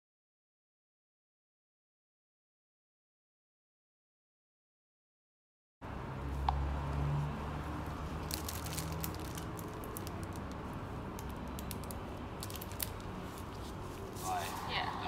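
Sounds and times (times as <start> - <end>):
plastic crinkling and clicks: 11.2 - 13.1.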